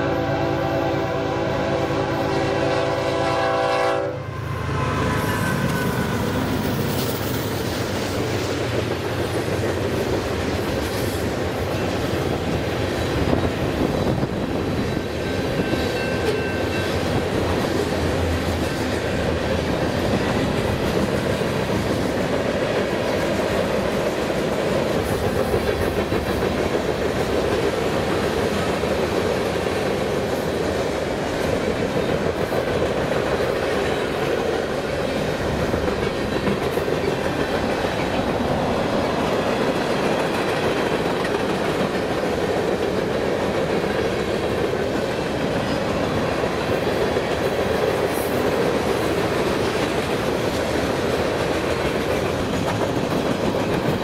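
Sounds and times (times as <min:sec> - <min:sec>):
train horn: 0:00.0 - 0:06.4
train wheels clicking over rail joints: 0:05.4 - 0:54.0.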